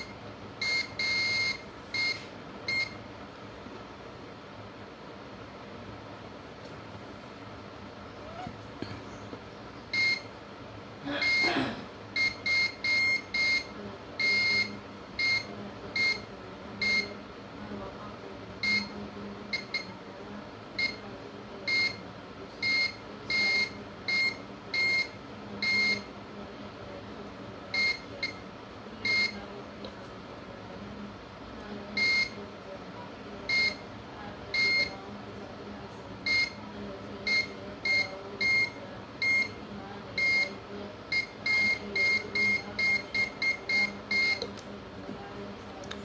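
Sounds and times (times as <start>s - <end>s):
multimeter short beeps: 0.0s - 3.0s, 10.0s - 10.3s, 11.2s - 11.5s, 12.2s - 17.2s, 18.6s - 20.0s, 21.7s - 22.0s, 22.6s - 26.1s, 27.8s - 28.4s, 29.0s - 29.4s, 32.0s - 32.4s, 33.5s - 33.8s, 34.6s - 35.0s, 36.2s - 36.6s, 37.2s - 39.6s, 40.2s - 44.5s.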